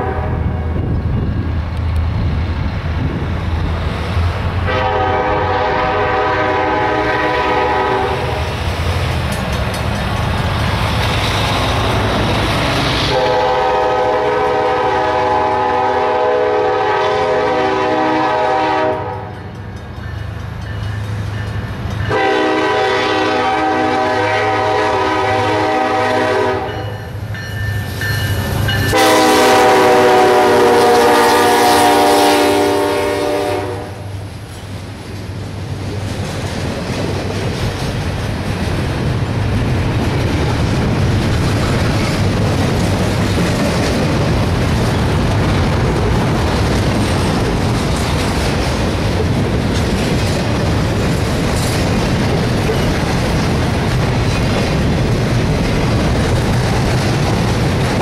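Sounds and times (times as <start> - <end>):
locomotive air horn blasts: 0.0 - 0.7, 4.7 - 8.5, 13.0 - 19.3, 22.1 - 27.0, 28.9 - 34.2
low rumble of train: 0.0 - 58.0.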